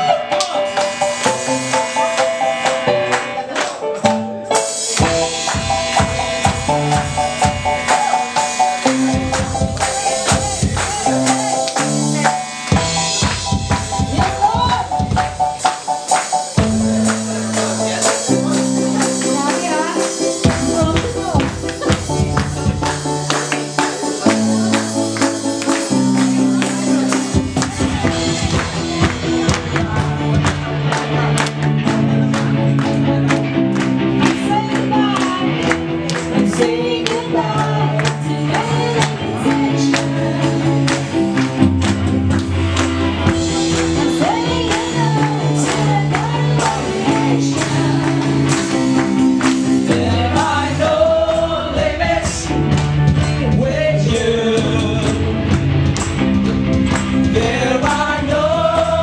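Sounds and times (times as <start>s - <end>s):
gospel worship song: 0.0s - 59.0s
people singing: 5.0s - 15.0s, 16.0s - 55.6s, 57.2s - 59.0s.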